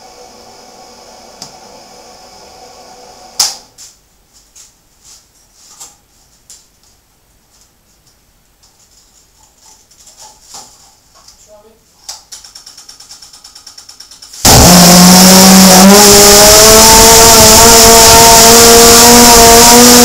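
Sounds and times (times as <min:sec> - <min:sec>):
loud sharp click: 0:03.4 - 0:03.6
steady hiss with faint hum: 0:03.4 - 0:12.1.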